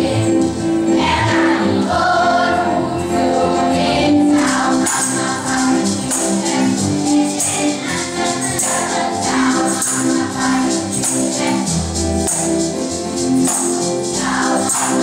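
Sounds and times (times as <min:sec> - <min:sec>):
acoustic guitar: 0:00.0 - 0:15.0
children's choir singing: 0:00.0 - 0:15.0
jingling percussion: 0:03.3 - 0:15.0.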